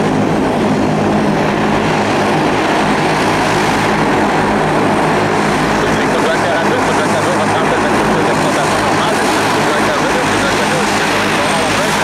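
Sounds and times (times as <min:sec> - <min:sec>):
turboprop engines droning: 0:00.0 - 0:12.0.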